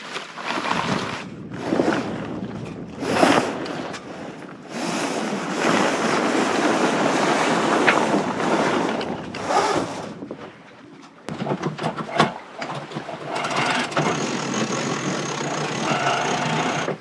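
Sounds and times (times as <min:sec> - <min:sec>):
sea water rushing past boat: 0:00.0 - 0:17.0
wind buffeting microphone: 0:00.5 - 0:11.7.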